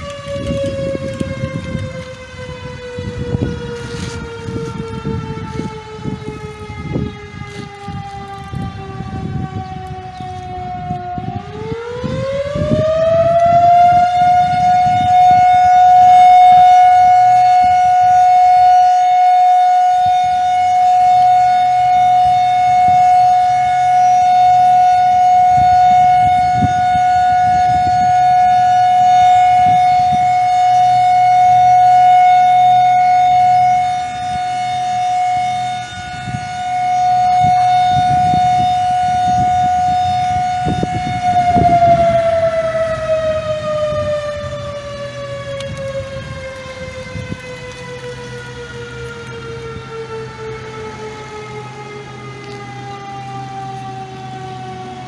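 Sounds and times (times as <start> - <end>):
siren wailing: 0.0 - 55.0.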